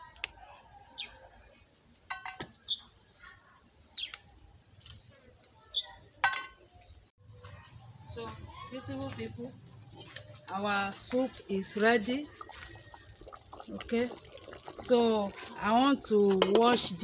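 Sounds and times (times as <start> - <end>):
birds chirping: 2.6 - 2.9, 3.9 - 4.3, 5.6 - 6.1.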